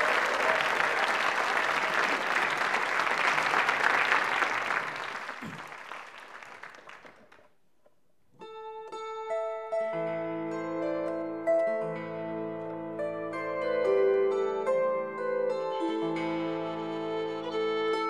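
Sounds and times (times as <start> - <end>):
audience applauding: 0.0 - 7.5
plucked harp notes: 8.4 - 18.0.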